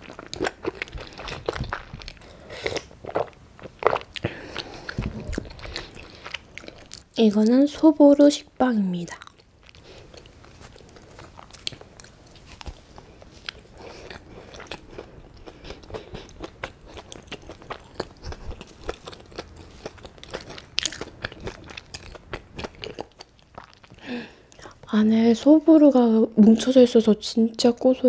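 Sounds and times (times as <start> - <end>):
chewing bread: 0.0 - 7.4, 9.1 - 24.9
crunchy topping crackles: 9.0 - 25.0.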